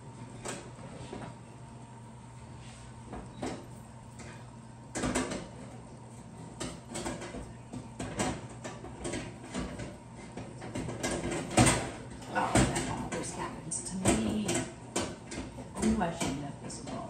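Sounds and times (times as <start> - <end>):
oven rack clanking and scraping: 6.4 - 17.0.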